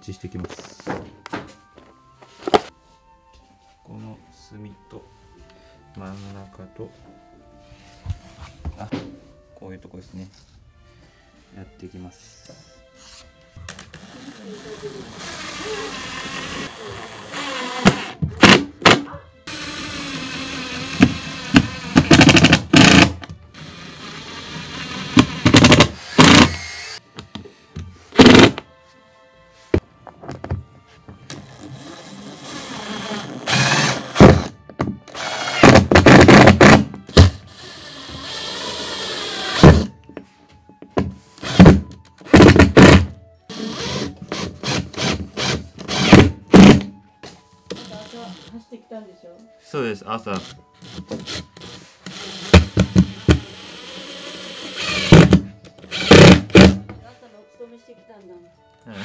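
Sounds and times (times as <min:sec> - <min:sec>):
power driver driving screws: 0:13.7 - 0:18.7, 0:19.5 - 0:27.0, 0:31.3 - 0:39.9, 0:41.4 - 0:46.8, 0:47.7 - 0:48.5, 0:50.4 - 0:56.8.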